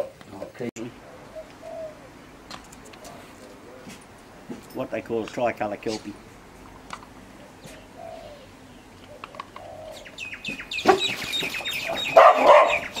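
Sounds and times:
high chirping calls: 7.5 - 13.0.

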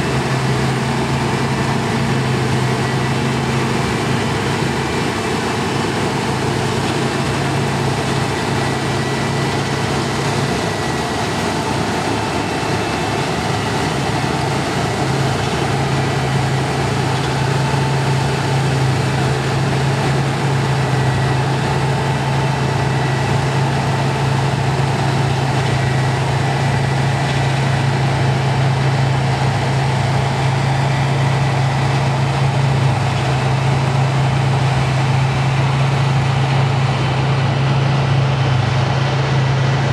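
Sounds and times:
low engine drone: 0.0 - 39.9
rushing noise from harvester: 0.0 - 39.9.

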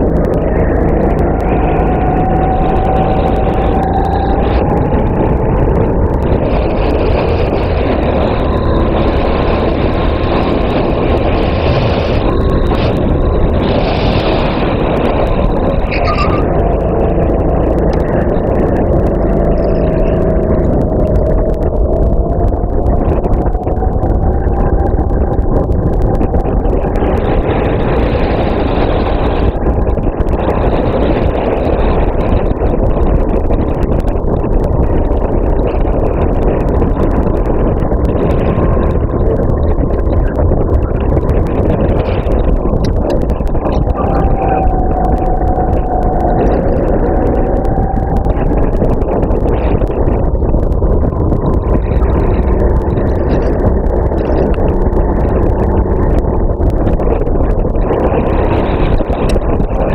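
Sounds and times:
rushing wind noise: 0.0 - 59.9.

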